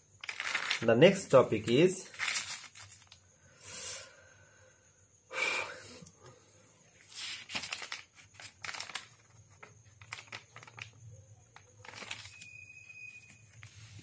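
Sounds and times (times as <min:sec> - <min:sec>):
notebook pages rustling: 0:00.2 - 0:03.2, 0:07.0 - 0:14.0.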